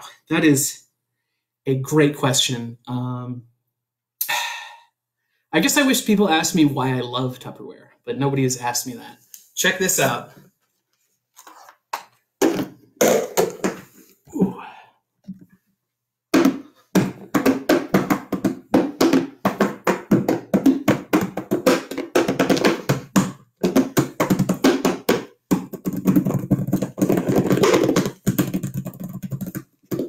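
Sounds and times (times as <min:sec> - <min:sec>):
hand drumming on plastic bowls: 0:12.0 - 0:14.0, 0:16.3 - 0:30.0.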